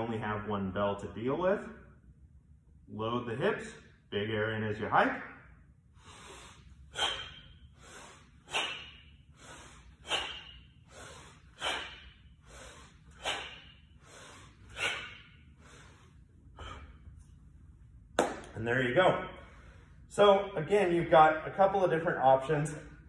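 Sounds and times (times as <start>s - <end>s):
forceful rhythmic breathing: 5.8s - 18.0s, 19.1s - 20.2s.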